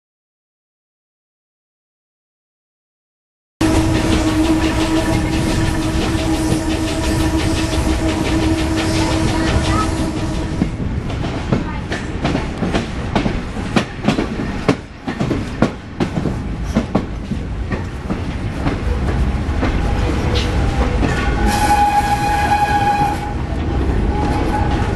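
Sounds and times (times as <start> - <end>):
train wheels ringing on curve: 3.6 - 15.8, 17.8 - 23.5.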